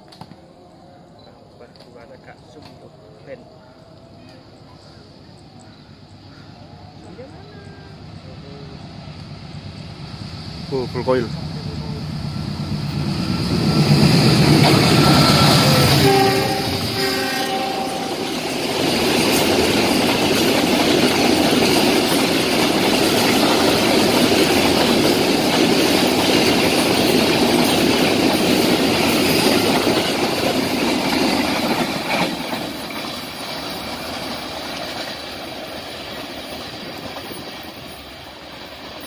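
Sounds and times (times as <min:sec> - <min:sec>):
freight train rolling past: 0:00.0 - 0:39.0.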